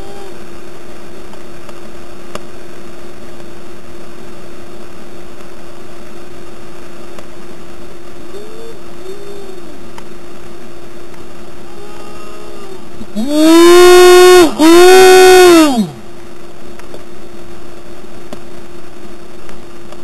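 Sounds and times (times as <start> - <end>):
thin steady hum: 0.0 - 20.0
rising and falling call: 11.7 - 16.0.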